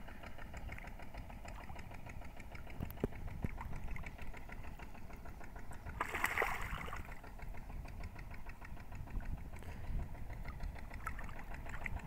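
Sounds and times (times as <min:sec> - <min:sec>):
low engine-like rumble: 0:00.0 - 0:12.0
fish splashing in water: 0:05.8 - 0:07.2.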